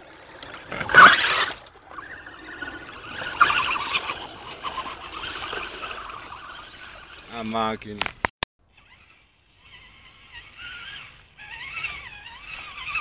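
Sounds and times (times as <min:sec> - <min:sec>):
toy truck motor whining: 0:08.7 - 0:13.0.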